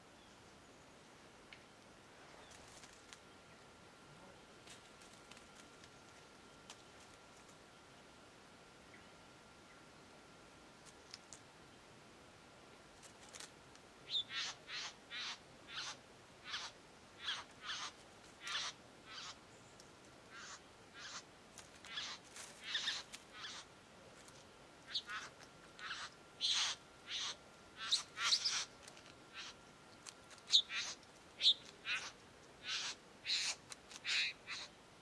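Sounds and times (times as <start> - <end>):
bird giving buzzy calls: 14.1 - 19.4, 20.3 - 23.7, 24.8 - 29.7, 30.4 - 34.8.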